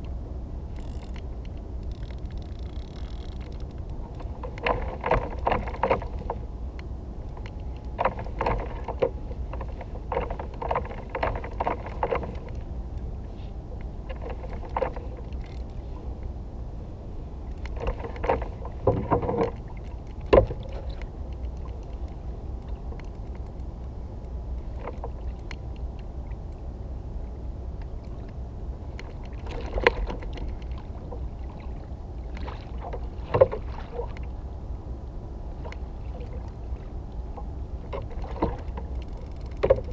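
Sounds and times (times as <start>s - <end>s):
steady low rumble: 0.0s - 39.9s
fishing reel clicking: 0.7s - 3.9s, 15.3s - 15.8s, 38.6s - 39.9s.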